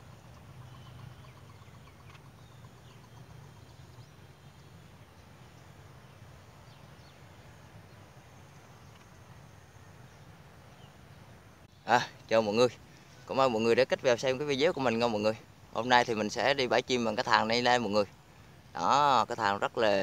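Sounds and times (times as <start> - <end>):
low hum: 0.0 - 13.3
distant bird chirps: 0.0 - 20.0.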